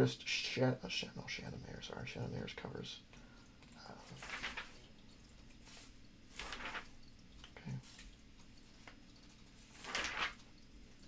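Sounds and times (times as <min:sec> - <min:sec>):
pages turning rustle: 0:04.0 - 0:04.9, 0:05.6 - 0:08.2, 0:08.8 - 0:10.6.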